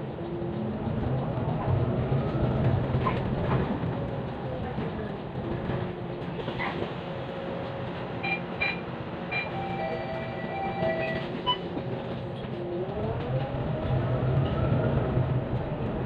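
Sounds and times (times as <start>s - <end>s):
bus engine rumbling: 0.0s - 16.0s
rising whine of bus: 6.0s - 16.0s.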